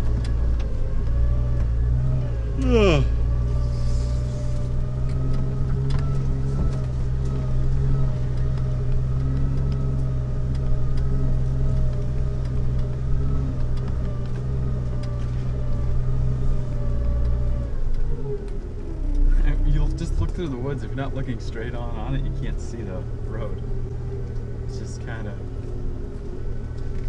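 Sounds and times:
car engine running: 0.0s - 27.0s.

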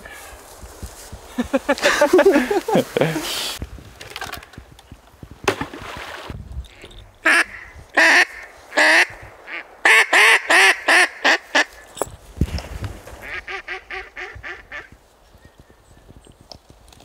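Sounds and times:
duck quacking: 7.2s - 11.8s, 13.2s - 14.9s.

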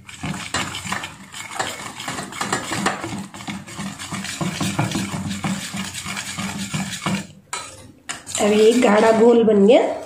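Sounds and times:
whisk scraping a steel bowl: 0.0s - 10.0s.

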